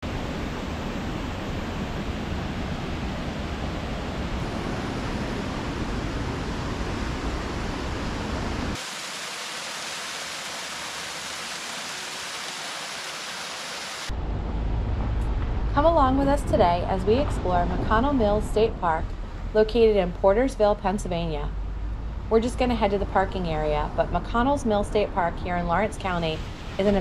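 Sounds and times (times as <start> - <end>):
water rushing over spillway: 4.4 - 14.1
small waterfall splashing: 8.7 - 14.1
low rumble: 14.1 - 26.8.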